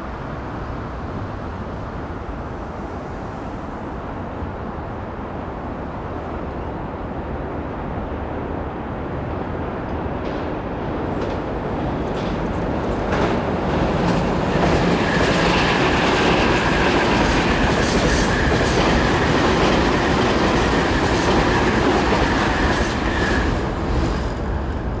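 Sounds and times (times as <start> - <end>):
train wheels rumbling on rails: 9.1 - 25.0.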